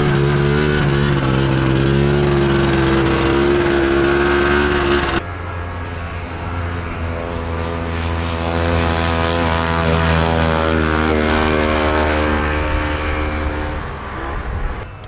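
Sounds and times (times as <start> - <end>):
snowmobile engine racing past: 6.2 - 14.5.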